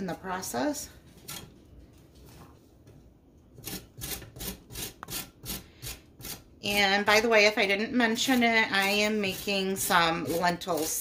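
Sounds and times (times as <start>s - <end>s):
carrots rasping on metal grater: 8.1s - 11.0s.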